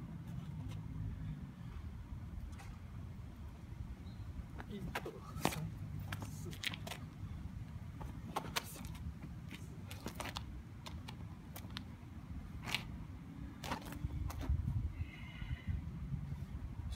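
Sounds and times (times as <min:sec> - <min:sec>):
steady low rumble: 0:00.0 - 0:16.9
footsteps scuffing on asphalt: 0:08.0 - 0:11.8, 0:13.6 - 0:14.6.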